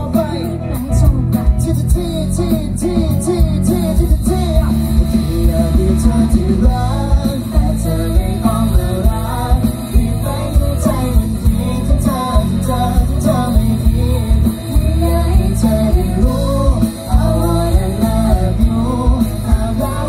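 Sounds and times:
bass guitar: 0.0s - 20.0s
drums: 0.0s - 20.0s
person singing: 0.0s - 20.0s.

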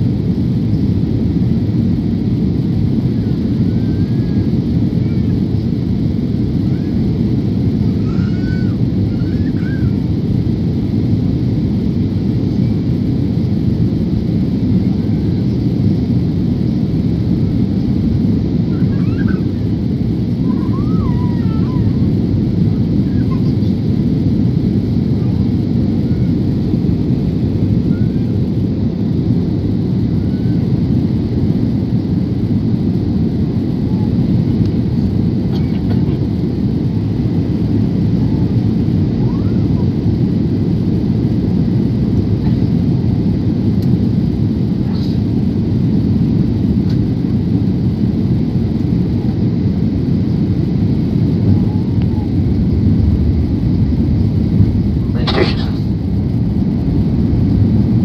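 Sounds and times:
airliner cabin engine noise: 0.0s - 58.0s.

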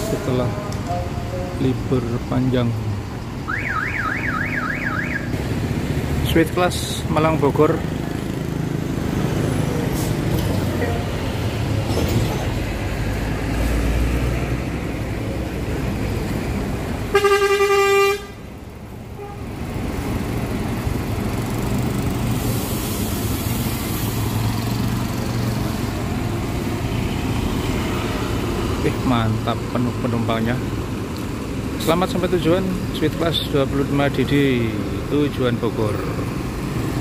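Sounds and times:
bus diesel engine running: 0.0s - 37.0s
bus horn blast: 17.1s - 18.4s, 19.1s - 19.5s.

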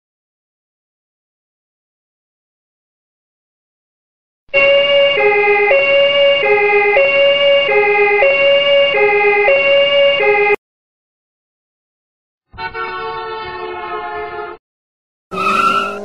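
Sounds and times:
toy car two-tone siren: 4.5s - 10.6s, 15.4s - 16.0s.

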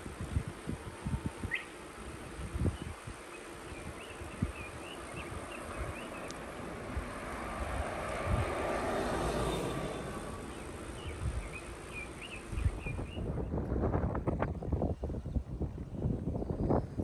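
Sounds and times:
wind rumbling on microphone: 0.0s - 17.0s
birds chirping: 1.5s - 13.5s
small cart driving past: 5.2s - 12.3s.

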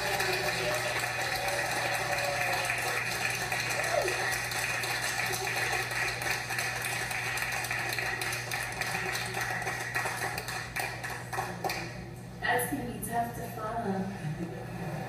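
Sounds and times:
audience applauding: 0.0s - 12.0s
low electrical hum: 0.0s - 15.0s.

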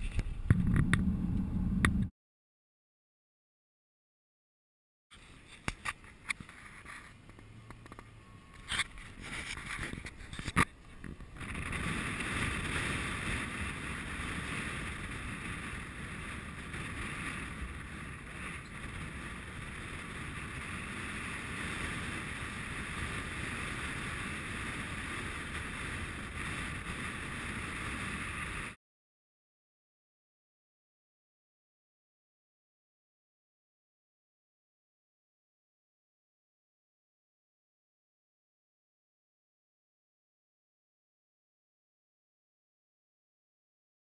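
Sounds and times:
wind and road noise: 0.0s - 2.1s, 5.1s - 28.8s
wind buffeting camera: 0.0s - 2.1s, 5.2s - 28.8s.

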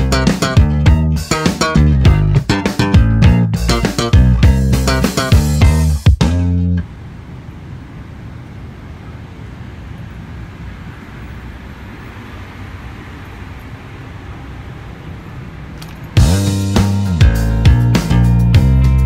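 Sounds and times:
bass guitar note: 0.0s - 6.8s, 16.2s - 19.0s
airliner cabin drone: 6.7s - 17.2s.

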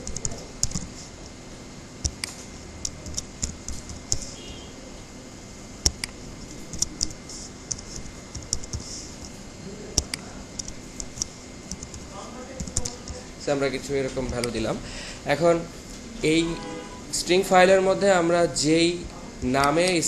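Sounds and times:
keyboard typing clicks: 0.0s - 0.9s, 2.0s - 4.4s, 5.8s - 9.4s, 10.0s - 13.2s, 14.2s - 14.6s.

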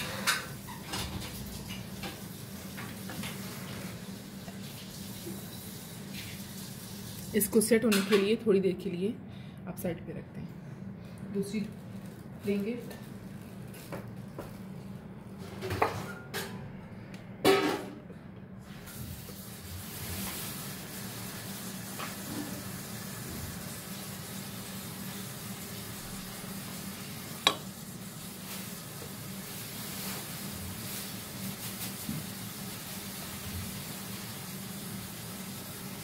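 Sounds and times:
steady low hum: 8.4s - 15.6s.

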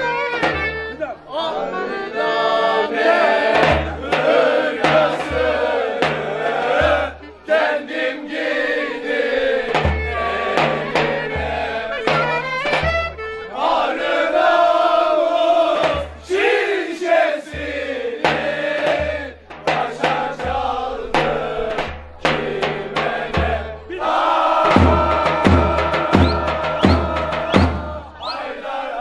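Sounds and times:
men singing in chorus: 1.5s - 12.5s, 13.5s - 29.0s
bass drum beats: 3.1s - 7.4s, 9.2s - 13.4s, 15.7s - 16.6s, 17.4s - 28.3s.

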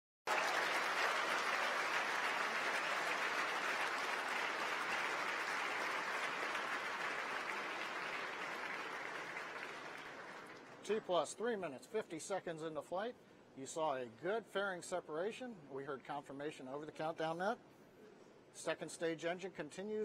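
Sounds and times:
crowd applauding: 0.2s - 10.8s.

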